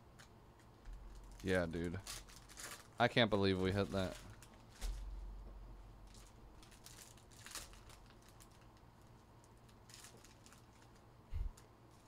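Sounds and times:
trading cards rustling and clicking: 0.2 - 5.0.

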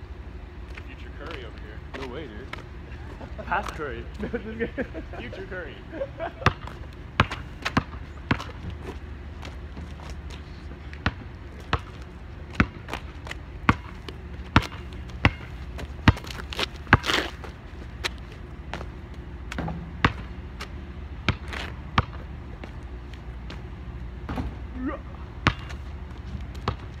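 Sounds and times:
basketball bouncing on asphalt: 6.4 - 24.7, 25.3 - 27.0.

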